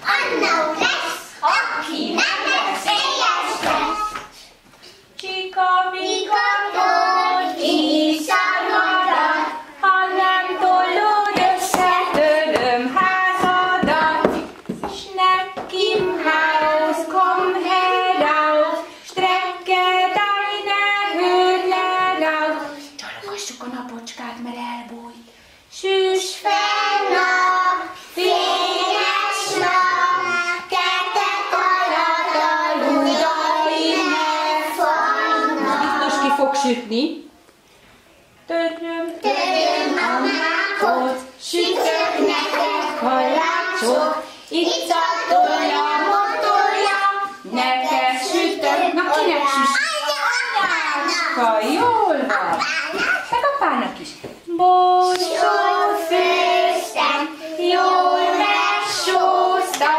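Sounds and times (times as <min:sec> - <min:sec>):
woman singing: 0:05.2 - 0:06.4, 0:07.3 - 0:14.5, 0:15.1 - 0:22.8, 0:42.9 - 0:45.0, 0:58.9 - 0:59.9
children singing: 0:05.7 - 0:14.5, 0:15.2 - 0:22.7, 0:26.3 - 0:36.4, 0:39.2 - 0:51.2, 0:55.0 - 0:59.9.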